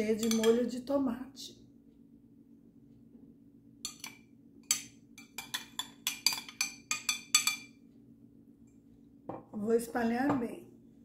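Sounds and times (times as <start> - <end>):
spoon clinking on glass bowl: 0.0 - 0.6, 3.9 - 7.8.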